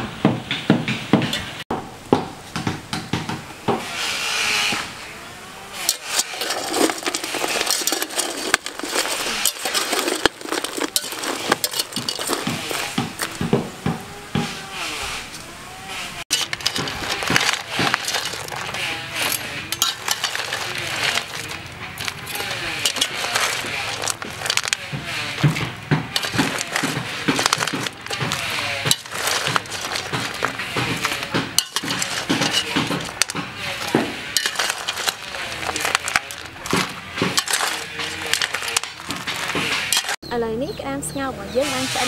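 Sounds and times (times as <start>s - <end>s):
metal skimmer scraping a pot: 5.8s - 13.5s, 16.3s - 40.2s
crab shells clattering: 5.8s - 13.6s, 16.3s - 40.2s.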